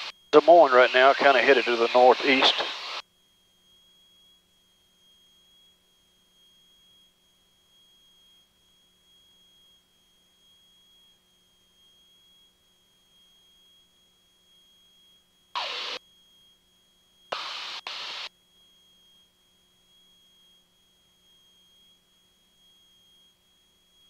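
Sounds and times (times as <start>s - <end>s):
radio static bursts: 0.0s - 3.0s, 15.6s - 16.0s, 17.3s - 18.3s
faint high-pitched whine: 0.0s - 24.0s.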